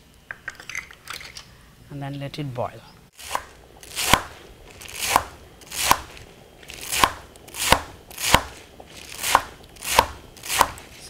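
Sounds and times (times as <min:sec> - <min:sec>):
knife chopping on wooden board: 0:03.2 - 0:11.0.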